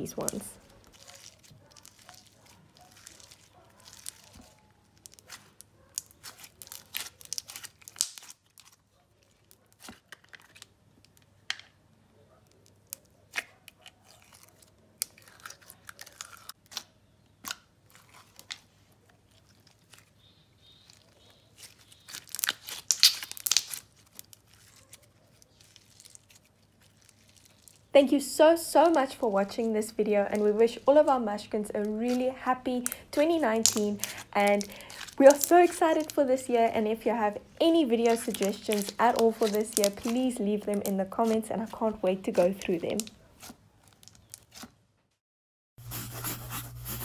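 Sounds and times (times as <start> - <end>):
sticky clicks and crackles: 0.0 - 11.8, 12.4 - 27.9, 30.3 - 44.7
slime squished by hand: 0.2 - 10.7, 12.5 - 27.9, 32.1 - 36.2, 38.0 - 41.4.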